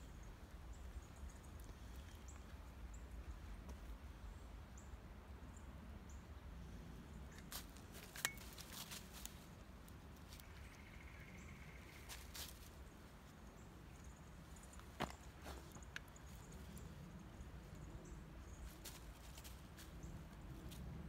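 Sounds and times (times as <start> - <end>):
crunching in dry leaves and snow: 7.5 - 10.7, 11.7 - 13.3, 18.6 - 21.0.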